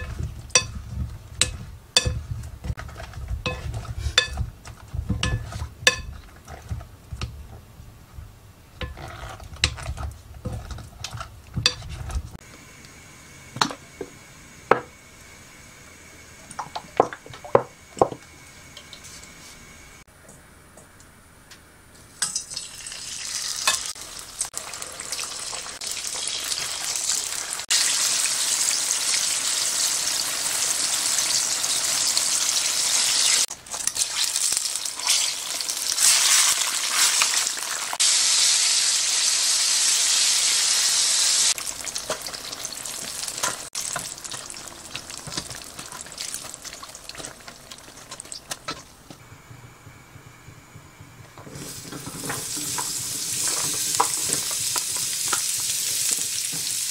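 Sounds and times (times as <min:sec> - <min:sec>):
deep-frying in hot oil sizzling: 0:22.2 - 0:48.6, 0:51.7 - 0:56.9.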